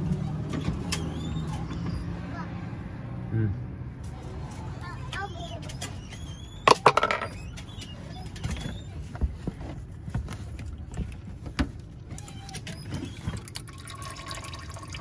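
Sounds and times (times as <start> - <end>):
oil draining into a pan: 13.4 - 15.0.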